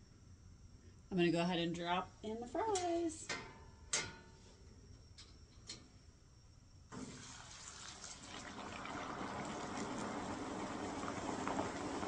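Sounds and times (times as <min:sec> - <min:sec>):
oil sizzling and bubbling: 0:06.9 - 0:12.0.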